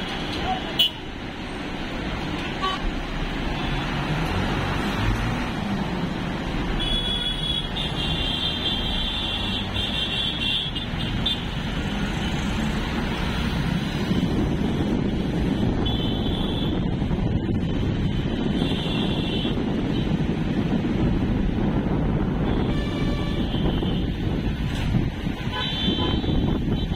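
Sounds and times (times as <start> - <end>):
traffic rumble: 0.0 - 26.9
shrill vehicle horn: 22.5 - 24.0, 25.4 - 26.4.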